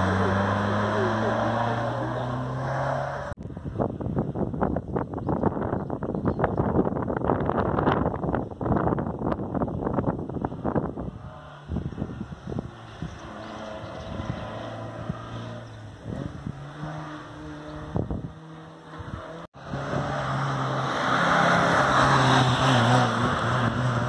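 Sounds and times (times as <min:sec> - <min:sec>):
rally car engine: 0:00.0 - 0:04.1, 0:09.3 - 0:24.0
wind gusts on microphone: 0:03.4 - 0:20.6.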